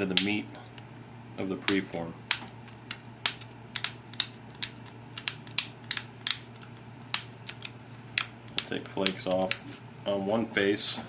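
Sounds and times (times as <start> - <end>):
steady low hum: 0.0 - 11.0
stone flaking clicks and snaps: 1.7 - 9.6.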